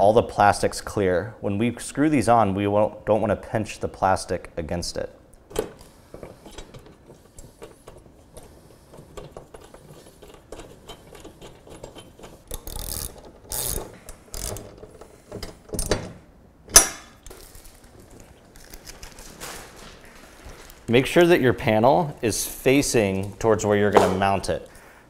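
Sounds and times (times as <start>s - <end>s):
ratchet clicking: 10.9s - 14.8s
scraping rustles: 17.3s - 21.4s.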